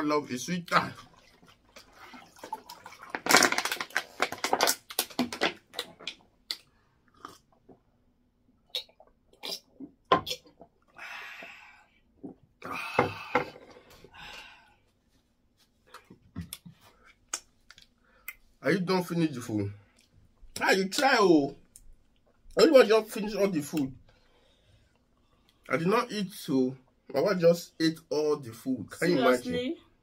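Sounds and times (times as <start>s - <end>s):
drinking and chewing noises: 0.6s - 7.9s, 8.6s - 12.9s, 19.8s - 22.6s, 23.4s - 25.8s
water poured into a mug: 0.9s - 3.9s.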